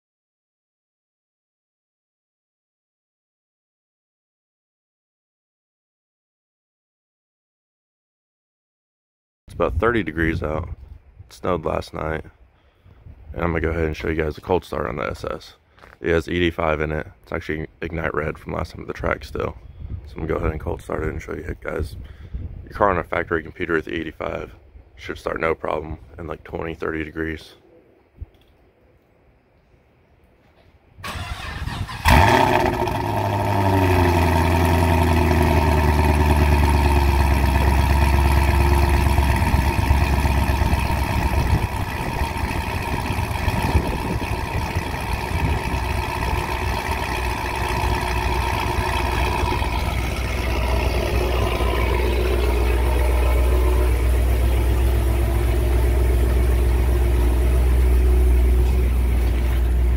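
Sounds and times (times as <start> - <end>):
car engine starting and idling: 31.0 - 59.9.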